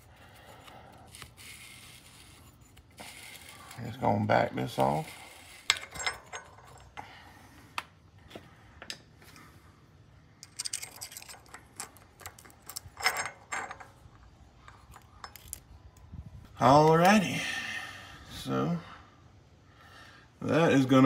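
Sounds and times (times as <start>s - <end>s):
metal scrape: 0.0s - 7.0s
light metallic clicks and clinks: 10.4s - 16.1s.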